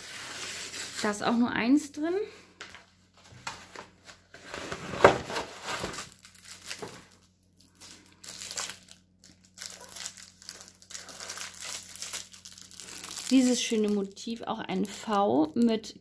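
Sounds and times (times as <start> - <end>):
cardboard and plastic crinkling: 2.6 - 15.7.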